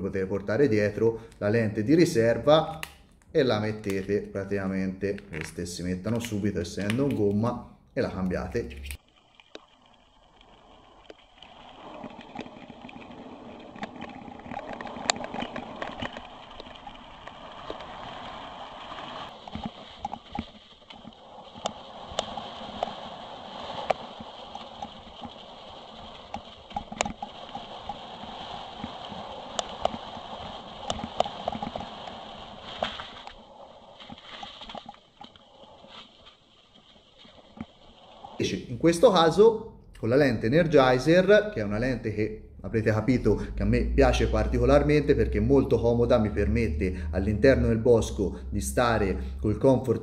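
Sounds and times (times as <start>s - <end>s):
bike tyres on gravel and leaves: 8.4s - 39.5s
bike rattling and knocking: 23.9s - 28.0s.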